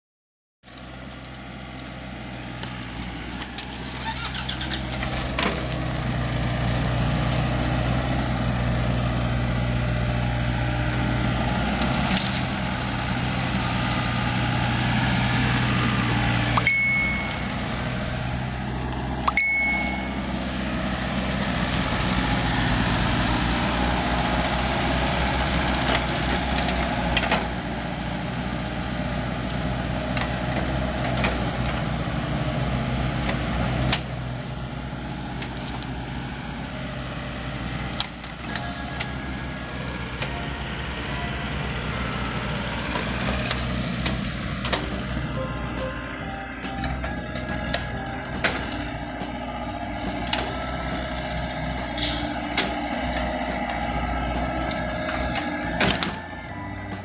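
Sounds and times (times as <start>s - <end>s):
diesel engine running: 0.7s - 57.0s.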